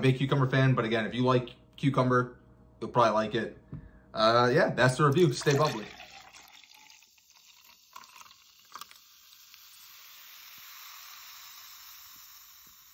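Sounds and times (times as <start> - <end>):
faint hiss: 5.5 - 12.9.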